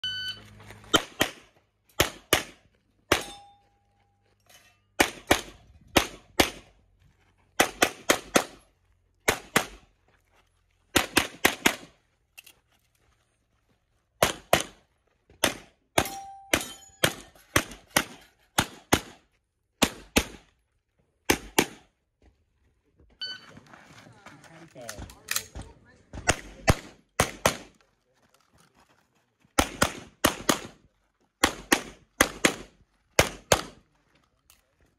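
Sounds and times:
pistol shots: 0.9 - 3.4, 5.0 - 6.7, 9.2 - 9.8, 15.4 - 19.2, 26.2 - 27.8, 29.6 - 30.8, 31.4 - 33.8.

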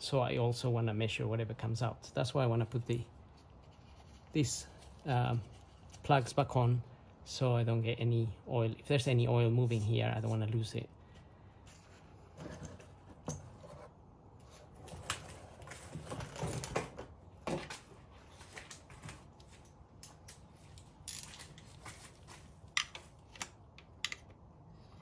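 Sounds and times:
tools knocking and scraping: 11.9 - 13.9, 20.0 - 24.4.

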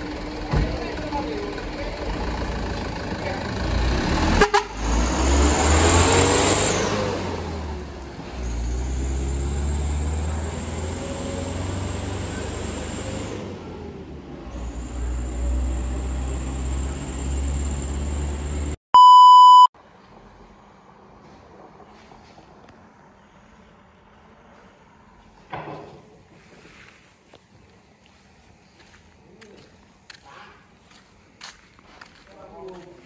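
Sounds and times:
diesel truck engine: 0.0 - 25.3
steady test-tone beep: 18.9 - 19.7.

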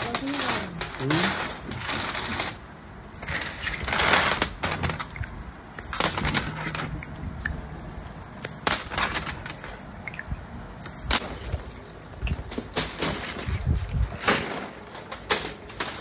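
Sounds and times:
low steady hum: 0.0 - 15.2.

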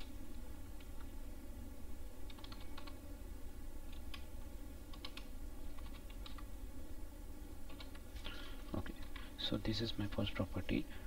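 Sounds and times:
low background hum: 0.0 - 11.0
computer keyboard typing: 2.3 - 3.0, 4.9 - 6.5, 7.7 - 8.0.

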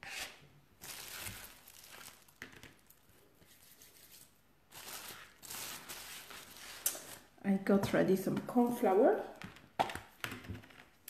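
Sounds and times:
plastic wrapping crinkling: 0.8 - 7.4.

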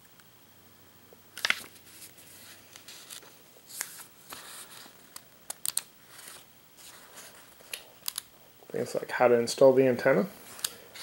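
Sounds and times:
paper crackles: 1.4 - 8.2
paper pages rustling: 1.4 - 8.2.

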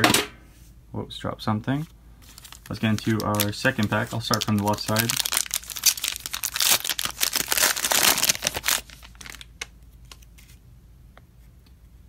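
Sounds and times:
plastic wrapper crinkling: 2.2 - 10.6.

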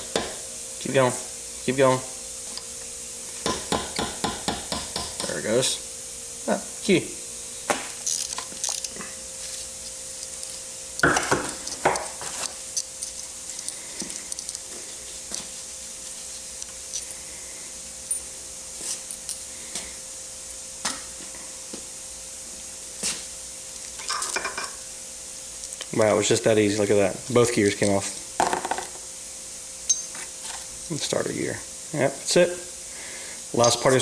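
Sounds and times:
faint steady hum: 0.0 - 34.0
metallic clicks and clinks: 8.0 - 9.0, 29.9 - 30.2.

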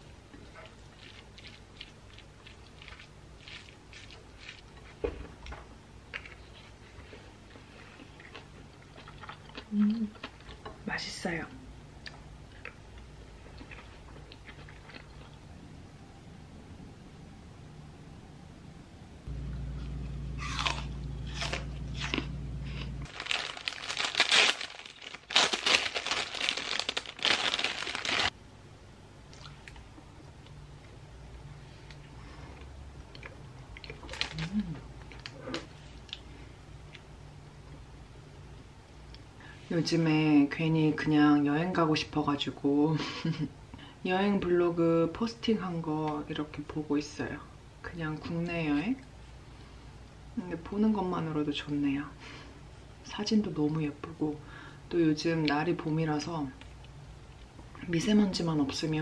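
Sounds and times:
low steady hum: 0.0 - 59.0
quiet chewing: 0.3 - 5.0, 6.1 - 10.7, 12.0 - 15.5, 31.8 - 37.1
apple slices crunching: 20.4 - 28.3
cellophane bag crinkling: 23.0 - 28.3, 34.0 - 34.6.

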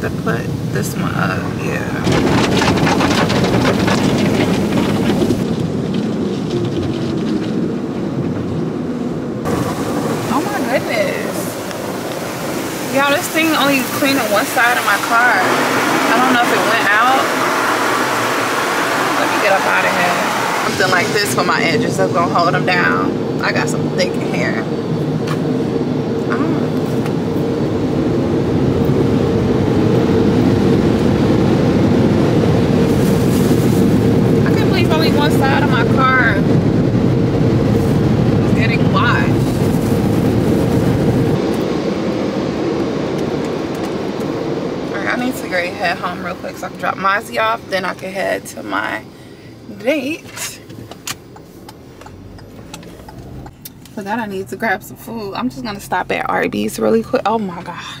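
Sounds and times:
car wash rushing noise: 0.0 - 58.0
constant hum: 0.0 - 58.0
water spray on car body: 9.5 - 21.6.

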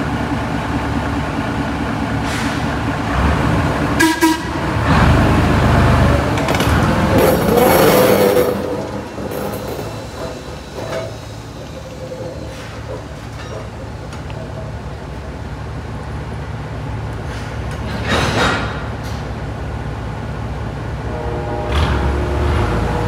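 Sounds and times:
locomotive engine hum: 0.0 - 23.0
rail noise: 0.0 - 23.0
train horn toot: 4.0 - 4.7, 21.0 - 23.0.

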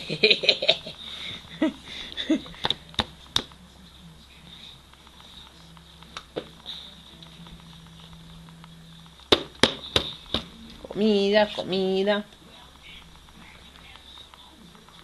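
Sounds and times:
hand slapping plastic tray: 2.6 - 3.6, 9.3 - 10.5.

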